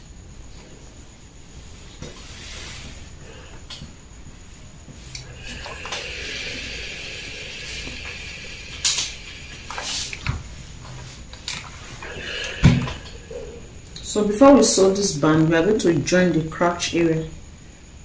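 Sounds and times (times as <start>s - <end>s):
steam iron hissing: 2.1s - 3.6s, 5.0s - 13.8s.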